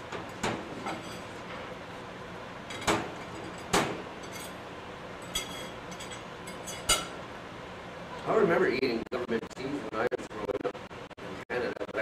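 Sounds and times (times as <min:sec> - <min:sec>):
plates and forks clinking on metal: 0:05.2 - 0:07.2.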